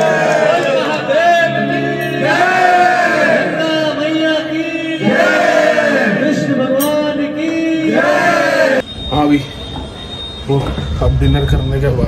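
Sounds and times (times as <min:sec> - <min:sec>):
voices chanting long notes: 0:00.0 - 0:03.9, 0:04.5 - 0:06.4, 0:07.6 - 0:08.9.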